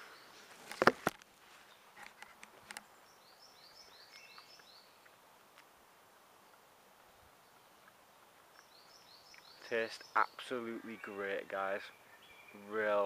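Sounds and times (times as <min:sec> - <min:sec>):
small bird singing: 0:00.0 - 0:00.5, 0:02.7 - 0:05.3, 0:06.2 - 0:13.0
faint woodland hiss: 0:00.0 - 0:13.0.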